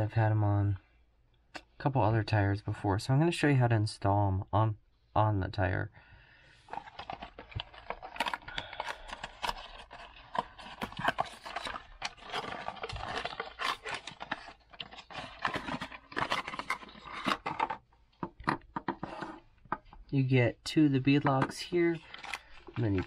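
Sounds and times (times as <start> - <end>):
cardboard box rustling: 6.7 - 19.8, 21.2 - 23.0.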